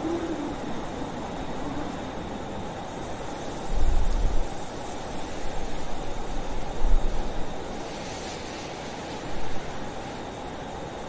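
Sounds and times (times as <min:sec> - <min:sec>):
faint wavering howl: 0:00.0 - 0:04.8
blizzard wind rushing: 0:00.0 - 0:11.0.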